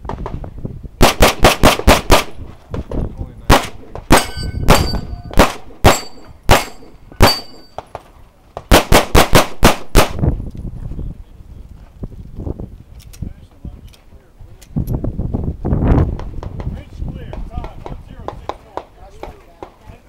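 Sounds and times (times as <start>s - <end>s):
handgun shots: 3.5s - 8.0s
steel plates ringing: 4.1s - 7.8s.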